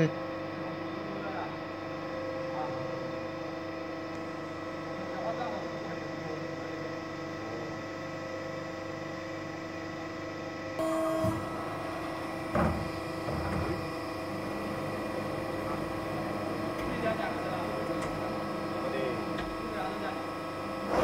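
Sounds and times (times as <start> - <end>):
machine hum with steady tones: 0.0 - 21.0
short loud tone: 10.8 - 13.9.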